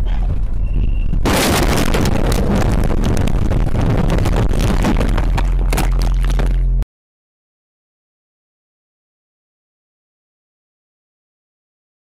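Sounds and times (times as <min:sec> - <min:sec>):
truck engine and road rumble: 0:00.0 - 0:06.8
loud crash impact: 0:01.2 - 0:06.7
metal crunching and scraping: 0:01.2 - 0:06.8.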